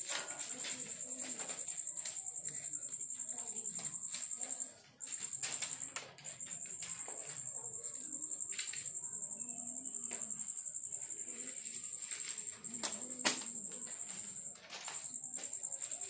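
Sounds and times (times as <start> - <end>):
high-pitched insect trill: 0.0 - 16.0.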